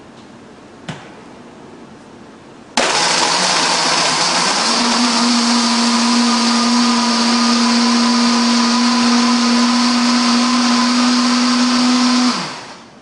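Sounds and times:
blender crushing ice: 0:02.8 - 0:12.9.

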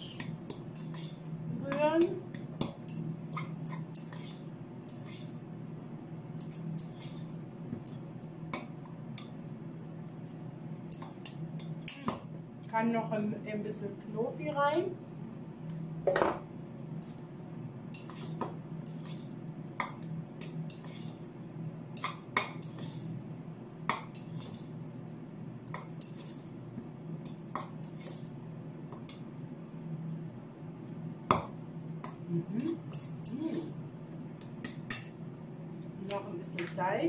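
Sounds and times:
steady low hum: 0:00.0 - 0:37.0
cutlery scraping metal bowl: 0:00.8 - 0:01.3, 0:02.9 - 0:05.4, 0:06.4 - 0:08.0, 0:17.9 - 0:19.4, 0:20.7 - 0:21.3, 0:22.0 - 0:23.2, 0:24.1 - 0:24.8, 0:26.0 - 0:26.6, 0:27.6 - 0:28.3, 0:32.6 - 0:33.8.

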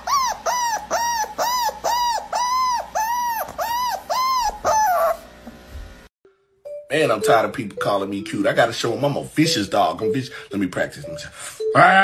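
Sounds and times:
puppy whining: 0:00.0 - 0:05.4.

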